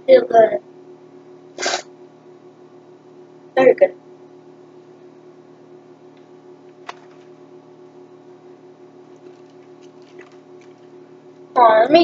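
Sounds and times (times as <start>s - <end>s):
steady low hum: 0.0s - 12.0s
package handling ticks: 6.2s - 7.4s, 9.1s - 10.9s.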